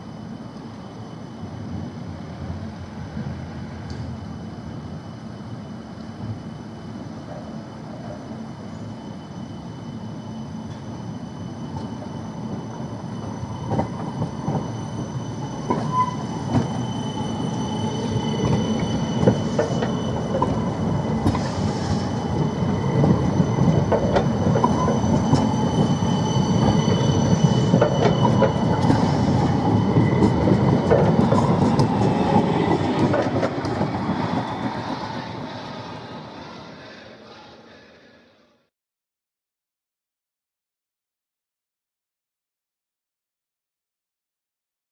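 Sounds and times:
high-pitched squeal: 8.6s - 38.4s
tram wheels rumbling on rails: 10.6s - 38.0s.

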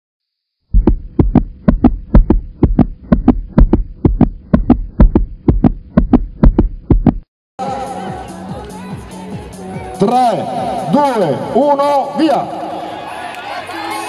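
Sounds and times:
heartbeat double thump: 0.7s - 7.3s.

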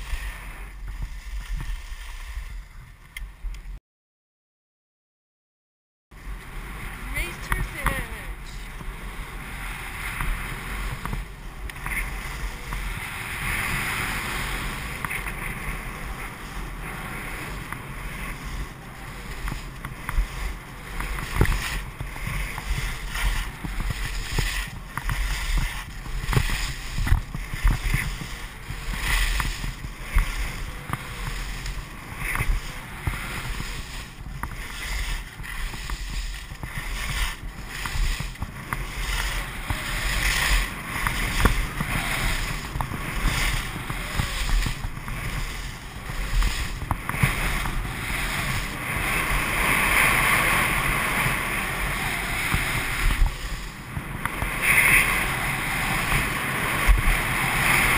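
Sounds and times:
skis scraping over snow: 0.0s - 3.8s, 6.2s - 57.9s
wind rumbling on microphone: 0.0s - 3.8s, 6.2s - 57.9s
ski edges knocking: 19.4s - 53.3s.

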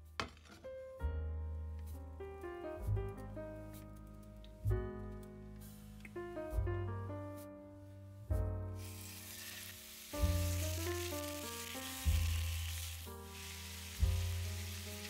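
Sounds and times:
gentle piano music: 0.0s - 15.0s
meat sizzling in oil: 8.8s - 15.0s.

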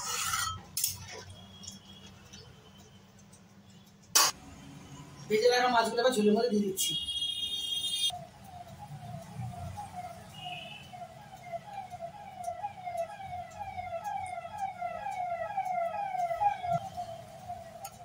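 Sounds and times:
siren-like repeating tone: 7.1s - 18.0s.

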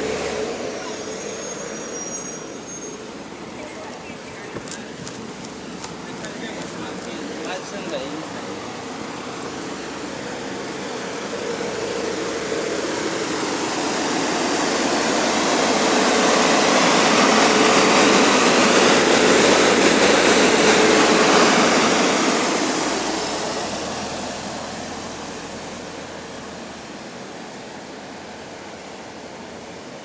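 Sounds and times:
engine cooling fan blowing: 4.3s - 26.5s.

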